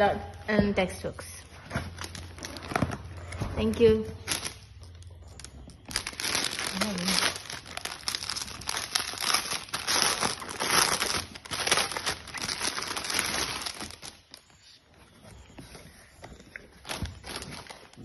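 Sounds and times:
plastic bag crinkling: 0:01.9 - 0:14.6.

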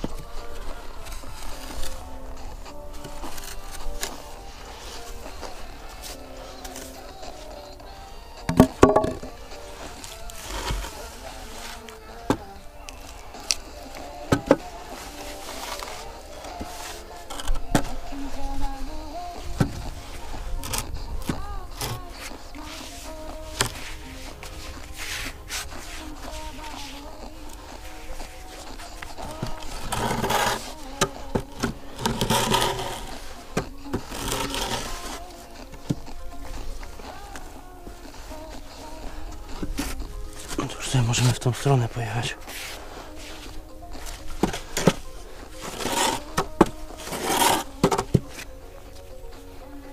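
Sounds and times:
sharp knocks of a board: 0:08.5 - 0:09.3
sand being scraped with a board: 0:21.8 - 0:35.3, 0:42.5 - 0:48.1.

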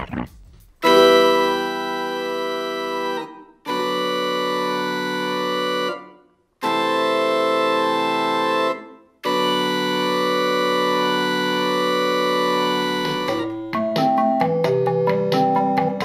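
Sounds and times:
organ-like sustained chords: 0:00.8 - 0:13.6.

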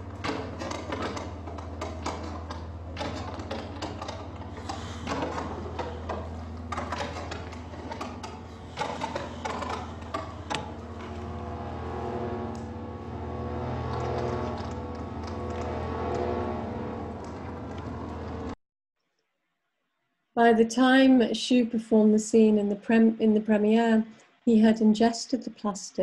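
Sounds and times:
steady low hum: 0:00.0 - 0:18.6
sustained musical tones: 0:00.0 - 0:18.6.

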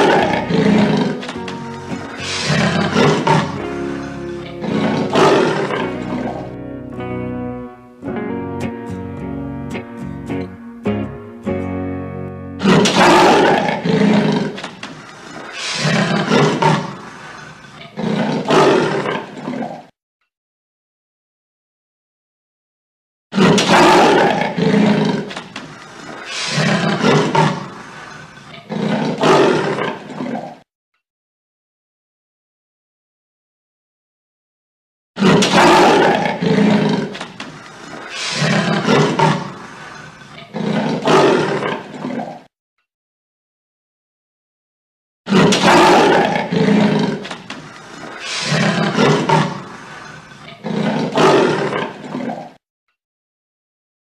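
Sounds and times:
tiger roaring: 0:00.0 - 0:06.6, 0:12.6 - 0:14.7, 0:15.4 - 0:17.1, 0:18.0 - 0:19.9, 0:23.4 - 0:25.4, 0:26.1 - 0:28.1, 0:28.7 - 0:30.6, 0:35.2 - 0:37.3, 0:37.9 - 0:42.5, 0:45.3 - 0:52.6.

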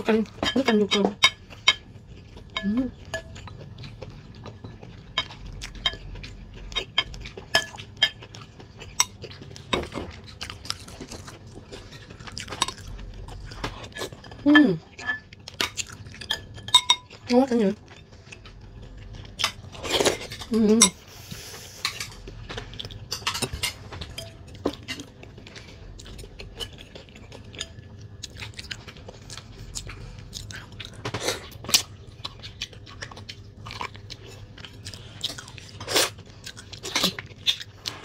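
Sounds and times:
chewing and biting food: 0:01.4 - 0:14.2, 0:14.9 - 0:20.5, 0:22.0 - 0:38.0
chopsticks and spoon clicking bowls: 0:13.9 - 0:17.2.

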